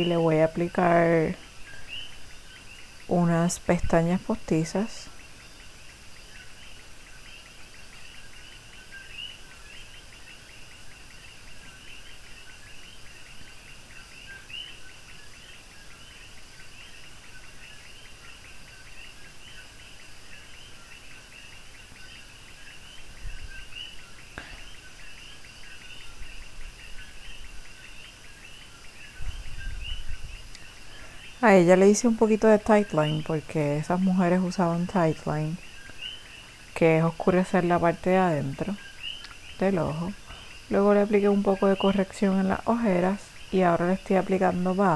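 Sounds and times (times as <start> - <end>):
faint click: 39.2 - 39.4.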